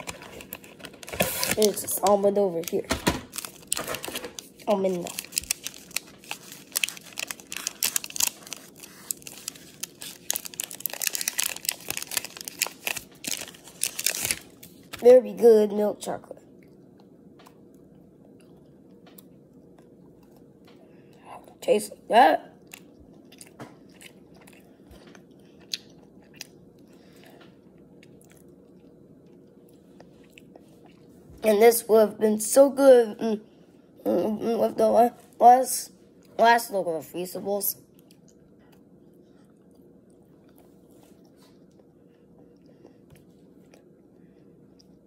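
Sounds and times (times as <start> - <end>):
wrapper crinkling and tearing: 0.0 - 15.0
chewing chocolate crunch: 1.2 - 14.6, 22.6 - 31.1.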